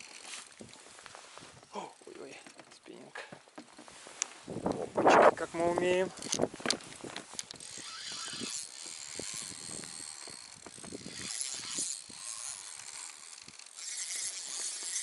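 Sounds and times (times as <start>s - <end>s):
fishing reel whirring and clicking: 0.0s - 0.8s, 5.9s - 15.0s.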